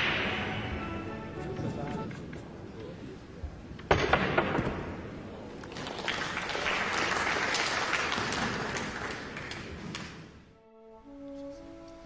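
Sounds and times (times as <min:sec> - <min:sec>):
audience applauding: 0:05.6 - 0:10.2.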